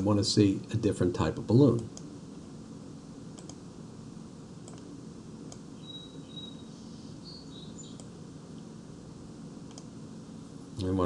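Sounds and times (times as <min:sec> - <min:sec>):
low steady hum: 0:00.0 - 0:11.0
computer mouse clicks: 0:03.3 - 0:03.6, 0:04.6 - 0:04.9, 0:05.5 - 0:05.7, 0:07.8 - 0:08.2, 0:09.6 - 0:09.9
faint high chirping tones: 0:05.7 - 0:08.2.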